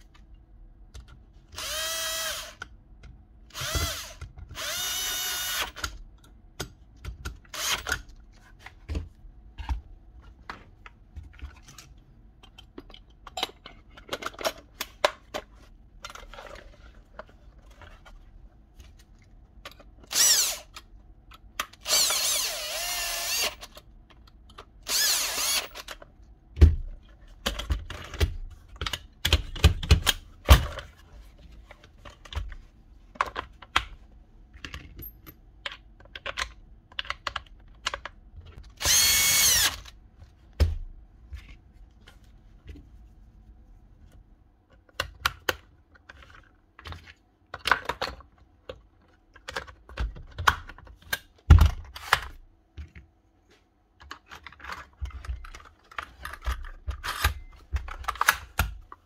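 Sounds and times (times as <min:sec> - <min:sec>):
small power tool motor whirring: 0:01.6 - 0:02.6, 0:20.1 - 0:20.7, 0:21.9 - 0:23.6, 0:24.9 - 0:25.7, 0:38.8 - 0:39.8
tool parts clicking and clattering: 0:11.4 - 0:17.9, 0:54.0 - 0:59.0.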